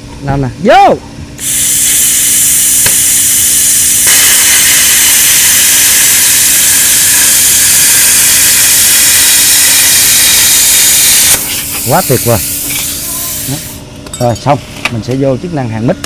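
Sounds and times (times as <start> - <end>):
faint machine hum: 0.0 - 16.0
plasma cutter hissing: 1.4 - 13.8.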